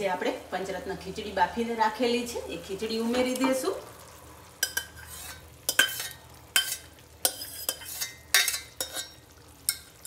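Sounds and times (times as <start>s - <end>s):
ladle scraping metal pot: 4.6s - 10.0s.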